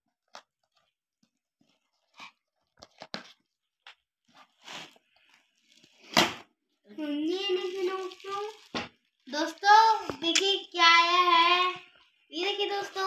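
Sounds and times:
packing tape scraping and ripping: 4.3s - 5.0s.

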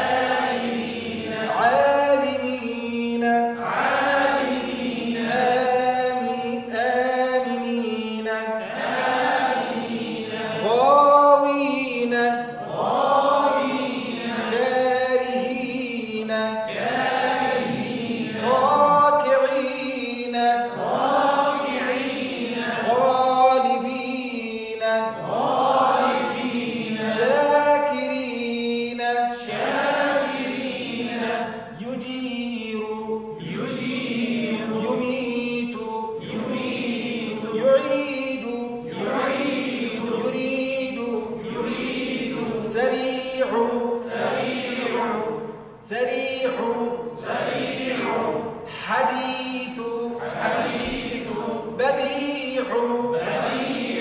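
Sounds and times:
voices chanting words: 12.5s - 14.9s, 33.3s - 35.1s, 36.1s - 45.5s, 46.4s - 49.4s, 50.1s - 54.0s.

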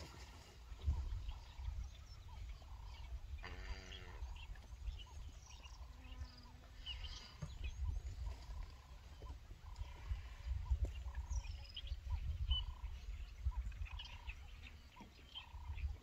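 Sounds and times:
constant low rumble: 0.0s - 16.0s
short pitched animal calls: 3.4s - 4.4s.

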